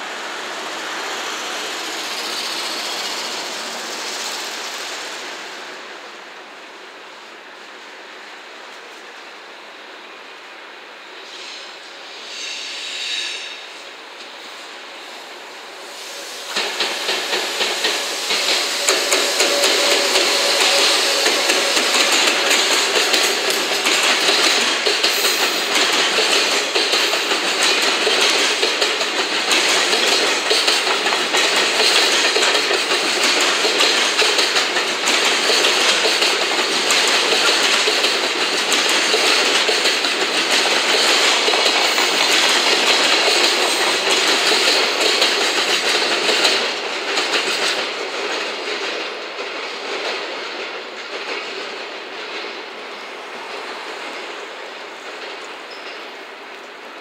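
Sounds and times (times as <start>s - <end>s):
train wheels rumbling on rail: 0.0s - 57.0s
clickety-clack over rail joints: 16.4s - 57.0s.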